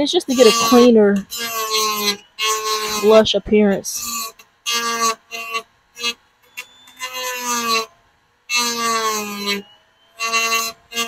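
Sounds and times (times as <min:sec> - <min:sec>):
rotary tool cutting plastic: 0:00.0 - 0:11.0.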